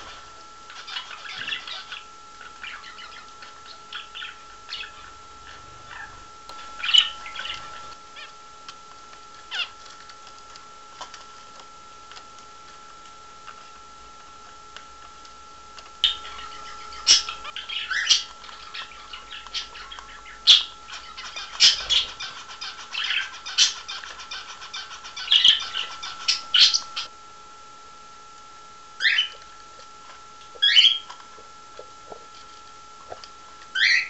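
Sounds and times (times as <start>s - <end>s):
parrots squawking and chirping: 0.0s - 8.4s, 9.5s - 9.8s, 16.0s - 27.1s, 29.0s - 29.4s, 30.6s - 31.1s, 33.7s - 34.0s
thin steady whine: 0.0s - 34.0s.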